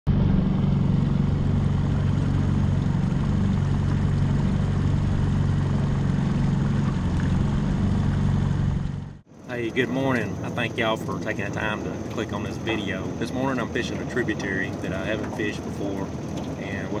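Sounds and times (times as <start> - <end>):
outboard motor running: 0.1 - 17.0.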